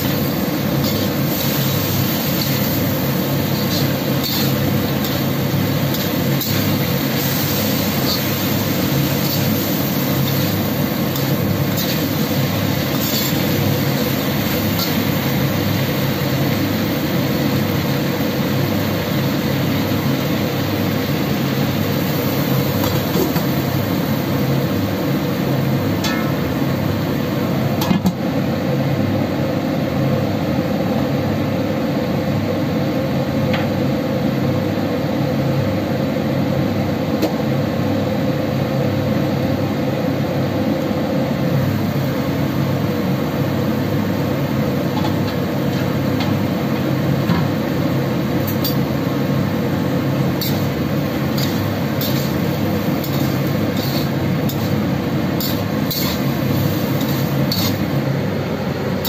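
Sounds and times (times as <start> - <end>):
utensil scraping a wok: 0.0 - 15.8, 50.3 - 58.0
stir-fry sizzling in a wok: 0.0 - 31.1, 31.8 - 59.0.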